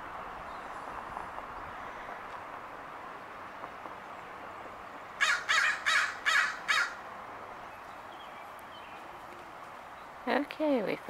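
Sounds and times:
crow cawing: 5.2s - 7.0s.

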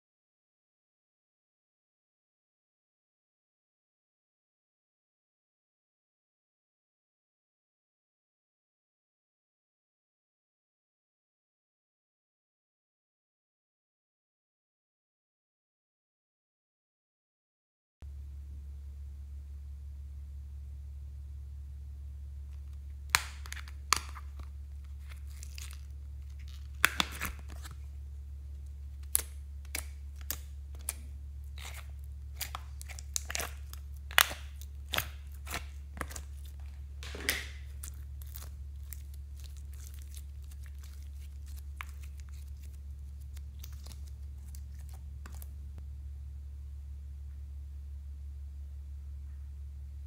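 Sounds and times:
steady low hum: 18.0s - 50.0s
slime peeling from plastic: 22.6s - 45.8s
plastic tray crackling and clicking: 23.1s - 27.8s.

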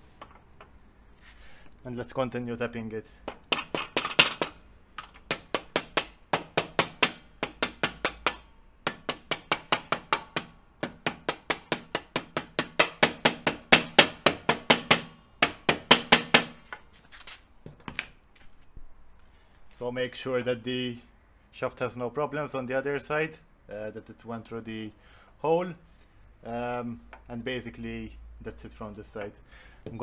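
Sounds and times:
rubber mallet knocking on metal: 3.3s - 16.6s.

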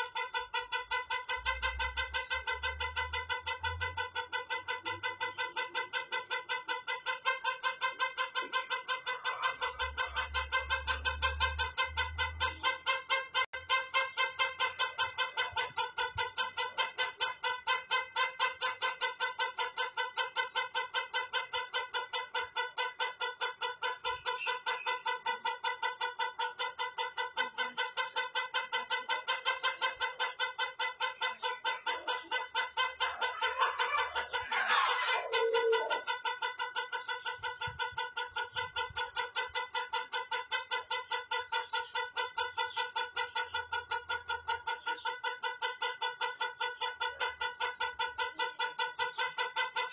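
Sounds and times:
rooster crowing: 33.0s - 36.1s.

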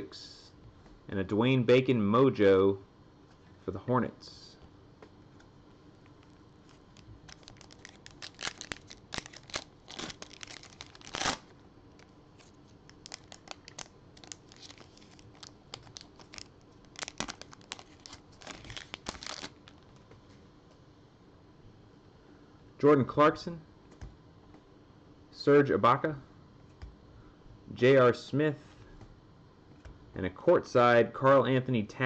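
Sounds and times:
foil wrapper tearing and crinkling: 6.6s - 19.8s.

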